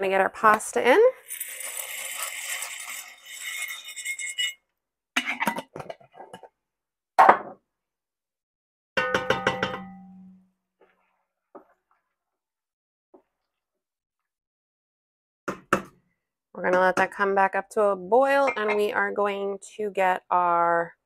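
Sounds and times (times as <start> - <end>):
dry pasta pouring into pot: 1.2 - 3.8
metal clang ringing: 18.5 - 18.9.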